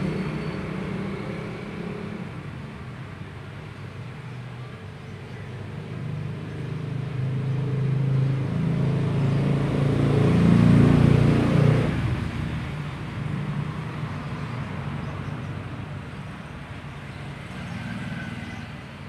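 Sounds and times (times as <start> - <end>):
vehicle engine passing: 6.2 - 16.1.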